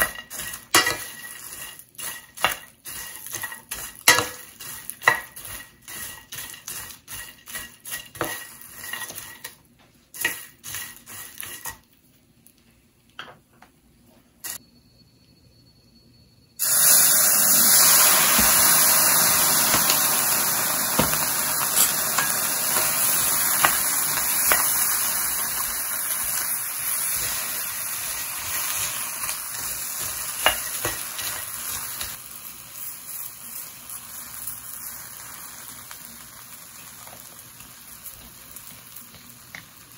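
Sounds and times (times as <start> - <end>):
spatula scraping a metal pan: 0.0 - 9.6, 10.2 - 11.8
sauce sizzling in hot pan: 0.0 - 11.8, 16.6 - 39.9.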